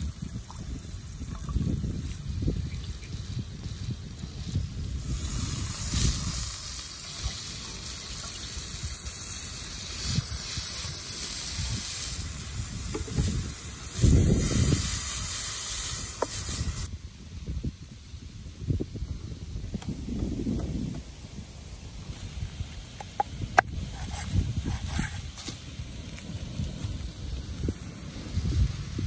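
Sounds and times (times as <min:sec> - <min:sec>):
noodles sizzling in a wok: 0:01.8 - 0:17.4.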